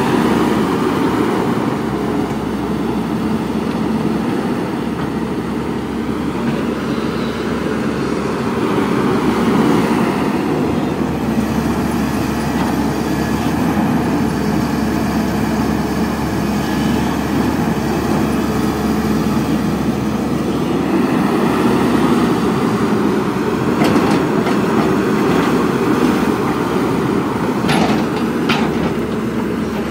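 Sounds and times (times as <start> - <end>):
excavator diesel engine: 0.0 - 29.9.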